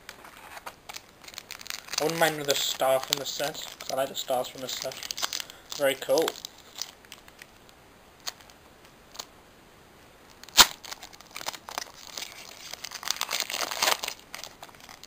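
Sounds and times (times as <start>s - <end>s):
foil wrapper crinkling and tearing: 0.1s - 7.6s, 10.3s - 15.0s
foil wrapper ticks: 0.9s - 7.5s.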